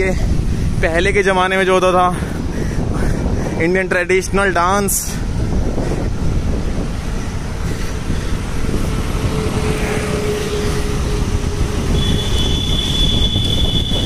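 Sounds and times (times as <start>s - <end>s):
road traffic noise: 0.0s - 14.0s
wind buffeting microphone: 0.0s - 14.0s
high-pitched squeal: 9.2s - 14.0s.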